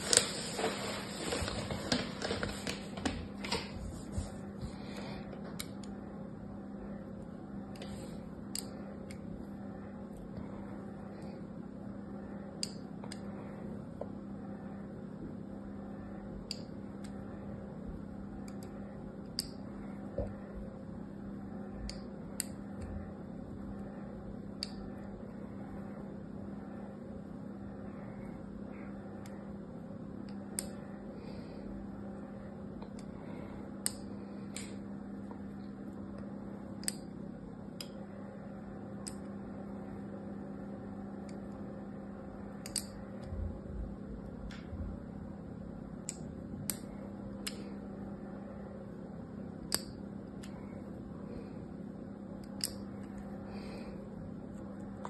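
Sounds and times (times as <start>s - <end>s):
steady low hum: 0.0s - 55.0s.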